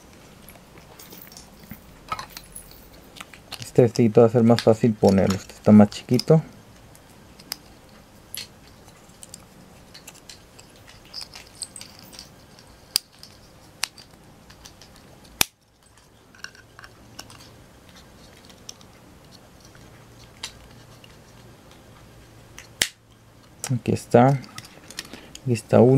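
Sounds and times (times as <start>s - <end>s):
plastic pieces clicking: 8.3s - 12.3s.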